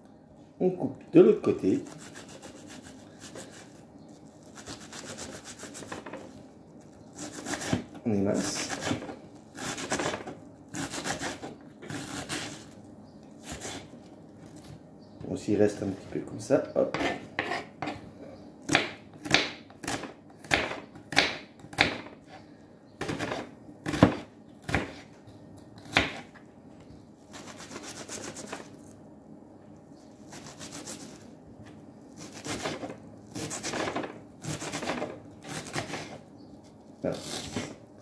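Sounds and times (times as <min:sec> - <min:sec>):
knife slicing and scraping: 0:07.1 - 0:12.8, 0:13.4 - 0:14.7, 0:16.9 - 0:18.0, 0:27.3 - 0:29.0, 0:30.0 - 0:31.3, 0:32.1 - 0:37.8
knife chopping on wooden board: 0:07.2 - 0:12.5, 0:16.9 - 0:18.0, 0:18.6 - 0:22.2, 0:23.0 - 0:25.0, 0:25.8 - 0:26.3.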